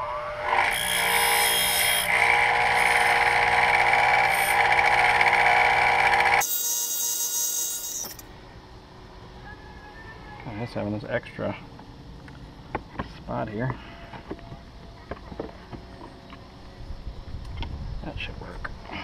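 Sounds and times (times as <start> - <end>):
bench grinder motor whine: 0.0 - 8.3.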